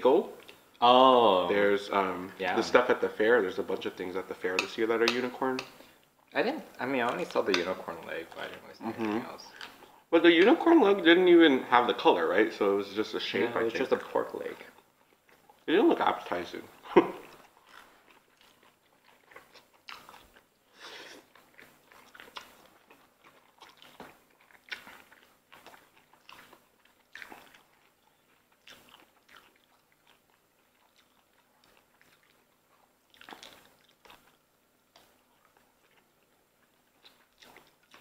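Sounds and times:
soft chewing: 0.2 - 38.0
lip smacking: 16.7 - 38.0.

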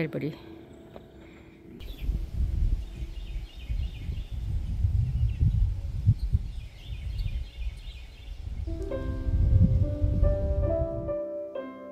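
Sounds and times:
small birds chirping: 0.2 - 9.2
low uneven rumble: 8.6 - 11.2.

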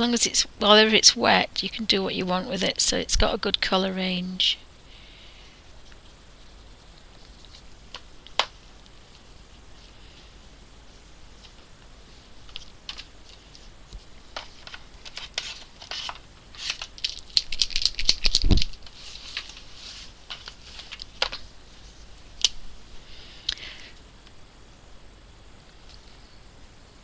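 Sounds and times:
paper and pens rustling: 5.8 - 22.1.

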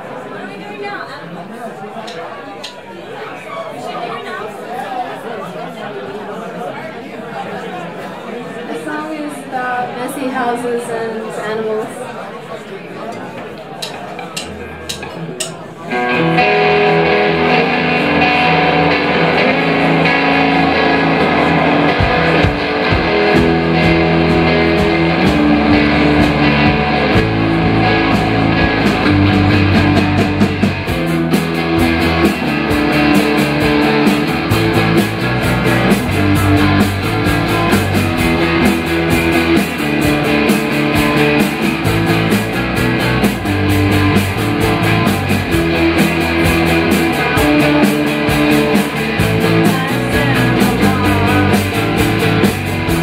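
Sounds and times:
drum beat: 13.8 - 15.6, 20.4 - 53.0
rock band playing live: 13.8 - 53.0
electric bass: 16.0 - 53.0.

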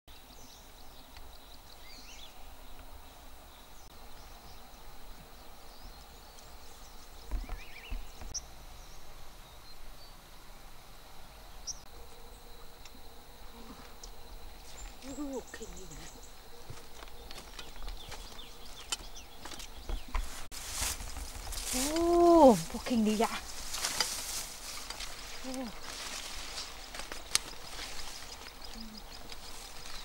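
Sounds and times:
background hiss: 0.1 - 30.0
high-pitched insect tone: 11.7 - 19.6
bird chirps: 26.6 - 30.0.

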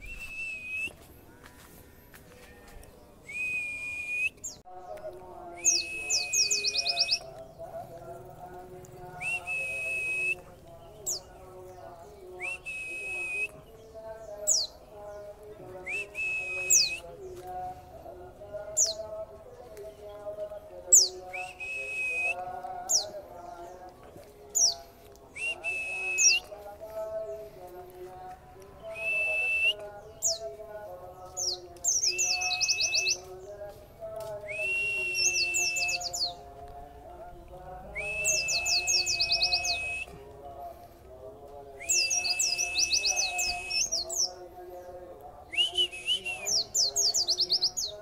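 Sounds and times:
bird whistles and trills: 5.6 - 7.2.

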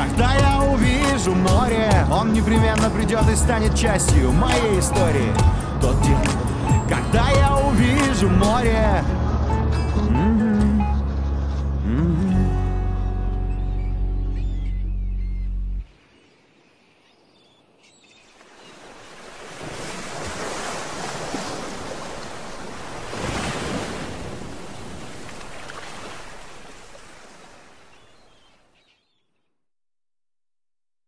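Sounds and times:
song: 0.0 - 14.2
surf washing over sandy beach: 18.4 - 27.9.

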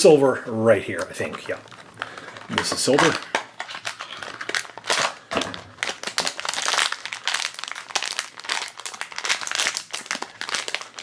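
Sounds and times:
plastic bag crinkling: 0.5 - 11.0.

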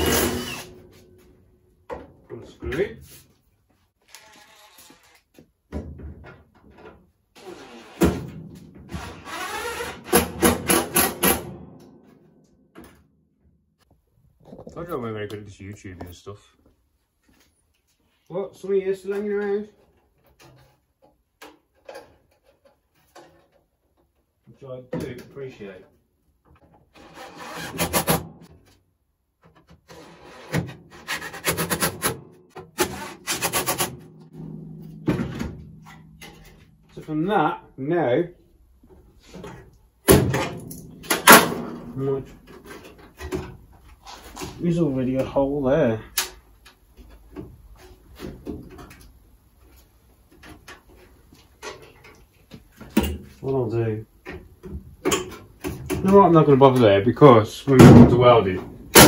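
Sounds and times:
cordless drill drilling sheet metal: 0.0 - 0.8, 4.1 - 5.2, 8.9 - 11.2, 27.0 - 28.2.

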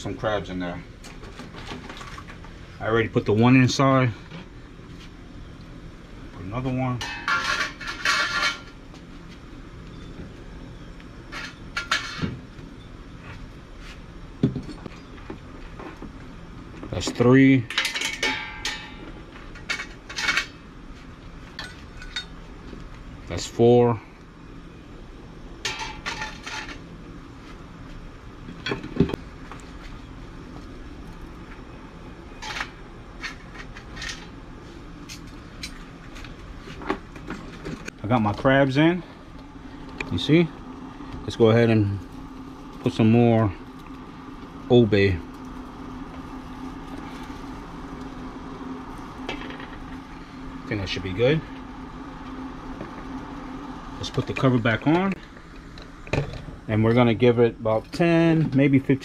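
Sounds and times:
steady low rumble: 34.0 - 59.0.

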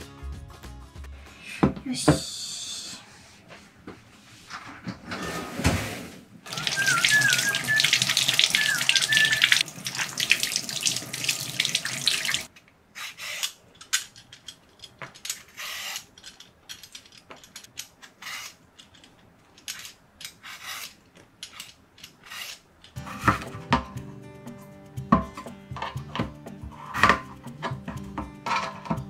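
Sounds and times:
tap water running into sink: 6.5 - 12.5
vegetable peeler scraping potato: 13.0 - 13.6, 18.2 - 18.6, 20.3 - 23.5.

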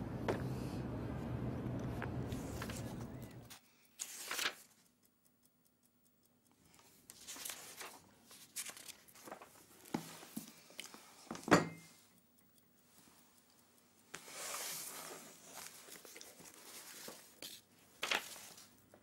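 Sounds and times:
book pages turning: 1.9 - 4.9, 6.8 - 11.0, 14.1 - 18.8
small handling sounds: 2.0 - 5.1, 6.5 - 19.0.

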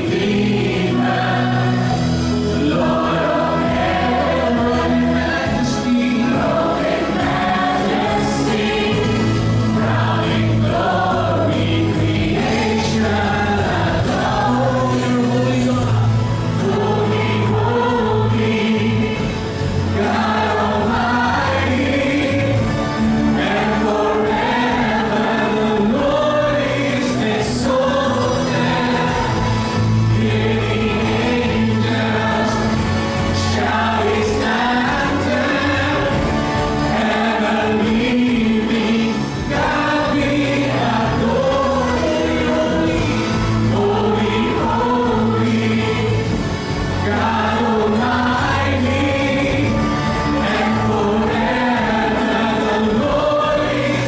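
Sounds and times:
bass guitar: 0.0 - 54.0
electric guitars: 0.0 - 54.0
group of singers: 0.0 - 54.0
keyboard: 0.0 - 54.0.

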